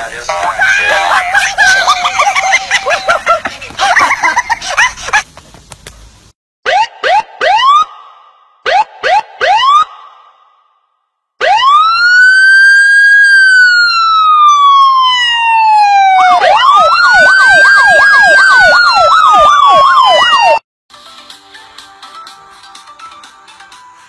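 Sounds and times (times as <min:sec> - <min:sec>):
fast siren yelp: 0:06.6 - 0:10.4, 0:11.4 - 0:20.6
emergency vehicle siren wailing: 0:06.7 - 0:08.0, 0:08.7 - 0:10.0, 0:11.4 - 0:20.6.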